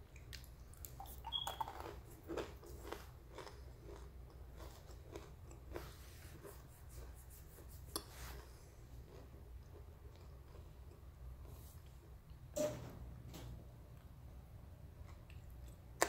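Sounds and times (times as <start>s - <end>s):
chewing crunchy clay: 0.2s - 6.6s.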